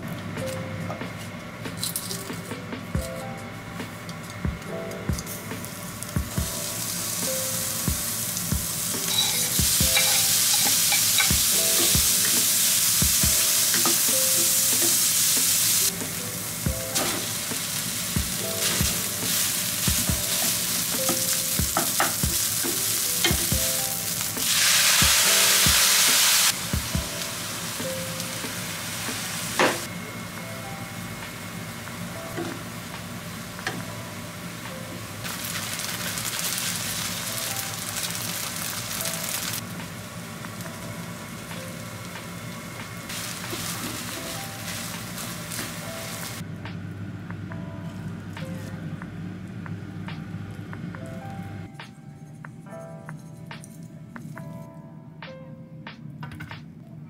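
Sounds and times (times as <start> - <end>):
soft background music: 0.0 - 57.0
food sizzling in frying pan: 5.1 - 46.4.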